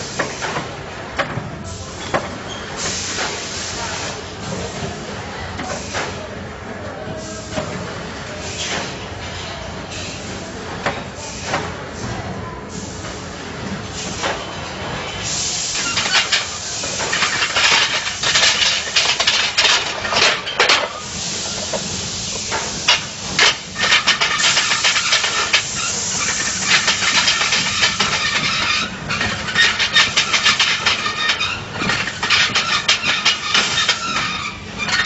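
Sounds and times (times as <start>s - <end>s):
machinery hiss: 2.7s - 4.7s, 14.0s - 28.9s
machinery clattering and rattling: 15.7s - 21.0s, 21.6s - 35.0s.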